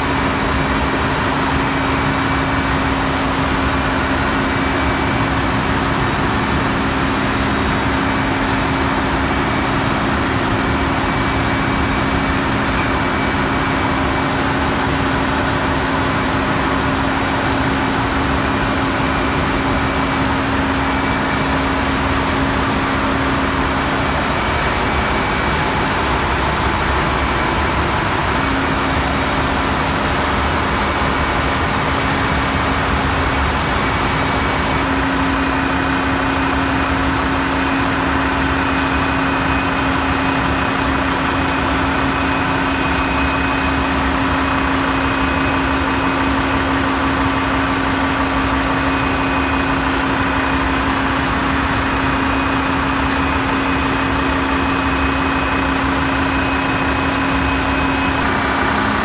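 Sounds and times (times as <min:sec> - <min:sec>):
ship engine room machinery noise: 0:00.0 - 0:59.0
steady hum: 0:00.0 - 0:59.0.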